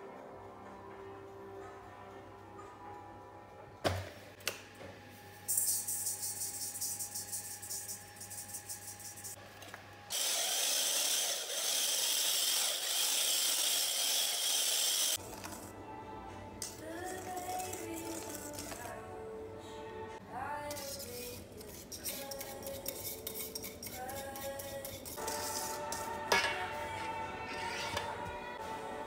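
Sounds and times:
electric hand mixer running: 10.1s - 15.2s.

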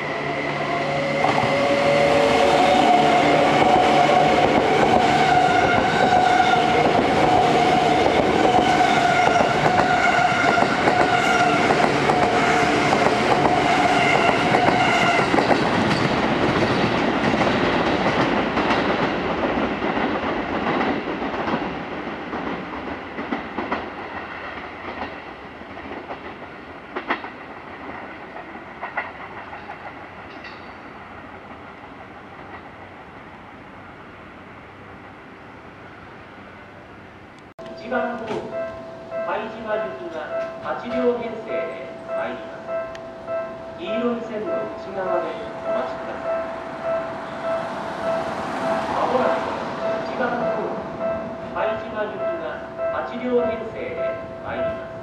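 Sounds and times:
train wheels on rails: 0.0s - 36.4s, 37.6s - 55.0s
electric train whine: 0.0s - 55.0s
wheels clacking over rail joints: 1.2s - 33.0s.

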